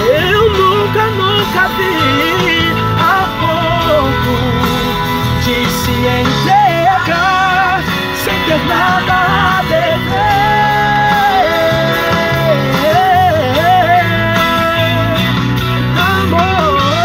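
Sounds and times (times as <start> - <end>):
instrumental accompaniment: 0.0 - 17.0
man singing worship song: 0.0 - 17.0.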